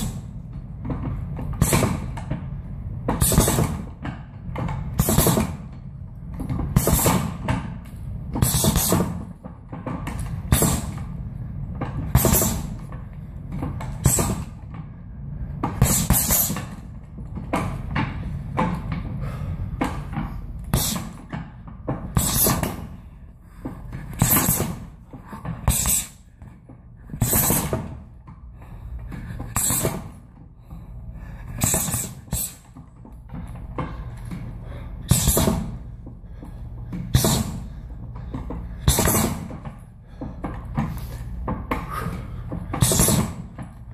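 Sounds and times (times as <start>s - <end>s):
punches thudding on heavy bag: 1.5s - 2.2s, 3.1s - 4.0s, 4.6s - 5.8s, 6.6s - 7.7s, 8.3s - 9.4s, 10.0s - 11.1s, 12.0s - 12.9s, 13.8s - 14.6s, 15.6s - 16.9s, 20.7s - 22.9s, 24.0s - 26.2s, 27.2s - 28.0s, 29.5s - 30.2s, 31.5s - 32.7s, 35.0s - 35.8s, 36.9s - 37.7s, 38.8s - 39.6s, 42.7s - 43.8s.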